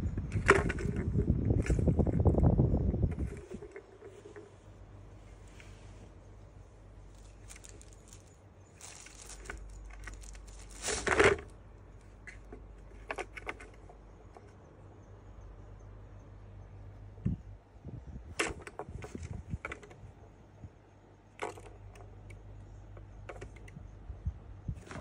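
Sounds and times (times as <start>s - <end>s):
plastic balls rattling in toy: 7.1s - 11.6s.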